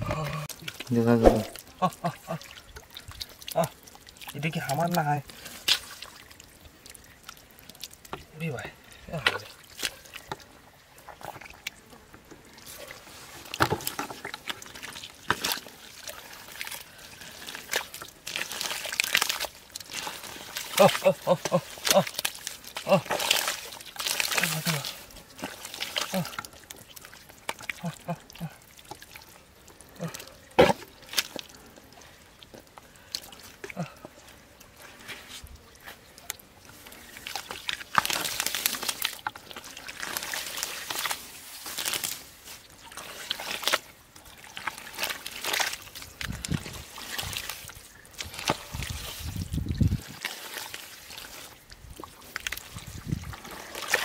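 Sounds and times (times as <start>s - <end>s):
hands squelching in wet mud: 0.0s - 11.8s, 12.5s - 54.0s
sharp mud slap: 1.1s - 1.6s.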